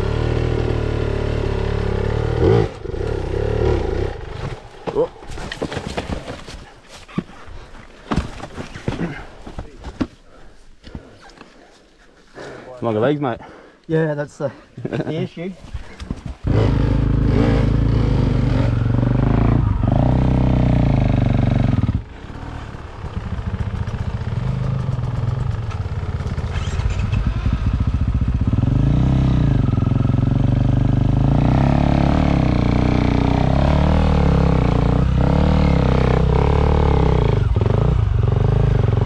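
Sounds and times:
dirt bike engine revving: 0.0 - 4.7, 16.4 - 39.0.

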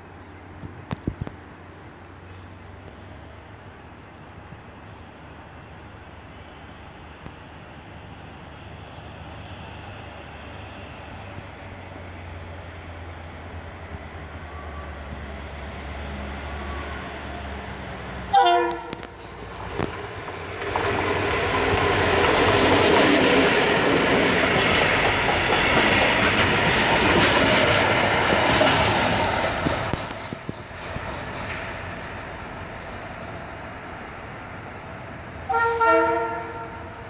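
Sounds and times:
diesel locomotive running: 0.0 - 37.0
train horn blast: 14.4 - 15.2, 16.4 - 17.4, 18.3 - 19.4, 35.5 - 37.0.

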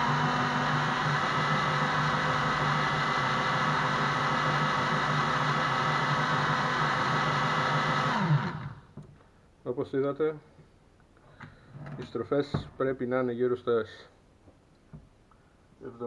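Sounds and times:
electric drill whining: 0.0 - 9.0.

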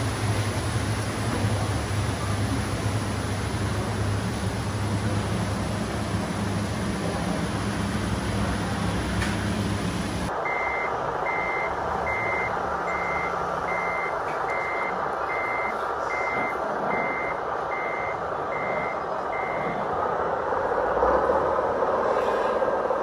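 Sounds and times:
reversing alarm beeps: 10.4 - 19.9.

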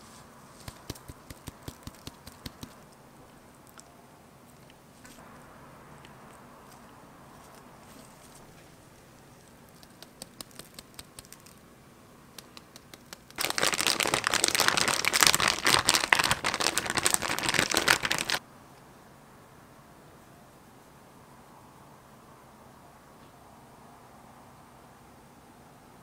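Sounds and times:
plastic bag crinkling: 13.2 - 18.4.

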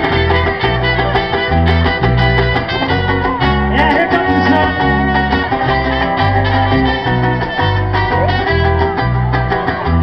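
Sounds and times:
acoustic guitar: 0.0 - 10.0
cajon beat: 0.0 - 10.0
electric bass: 0.0 - 10.0
trumpet: 0.0 - 10.0.

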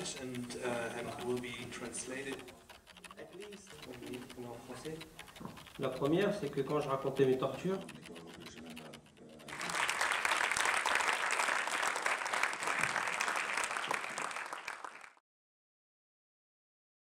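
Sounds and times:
audience applauding: 9.5 - 15.2.

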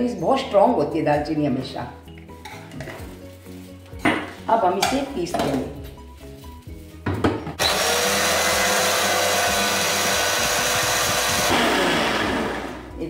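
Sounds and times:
mixer grinder motor running: 7.6 - 12.9.

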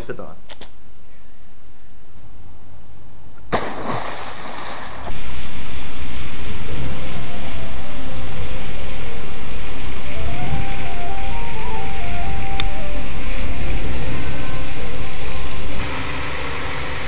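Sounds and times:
wake water rushing and splashing: 3.5 - 17.0
boat engine running: 4.9 - 17.0.

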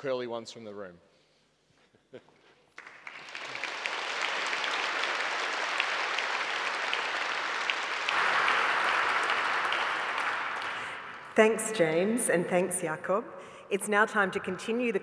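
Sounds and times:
audience applauding: 2.7 - 12.0.

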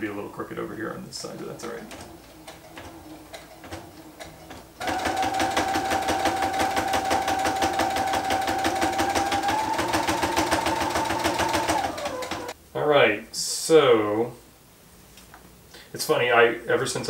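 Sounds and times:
sewing machine stitching: 1.2 - 12.6.

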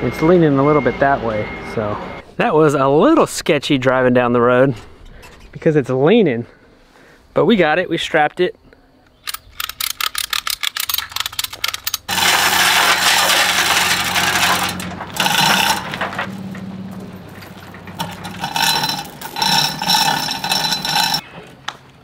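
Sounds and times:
ratchet strap clicking: 9.2 - 12.1
chain rattling through hoist: 9.3 - 16.3, 17.2 - 21.2.

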